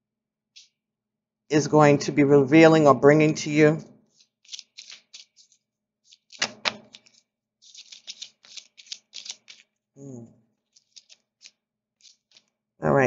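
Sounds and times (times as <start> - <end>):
cards being shuffled: 4.1 - 9.8, 10.6 - 12.6
card snaps: 6.3 - 7.2
voice humming: 10.0 - 10.3.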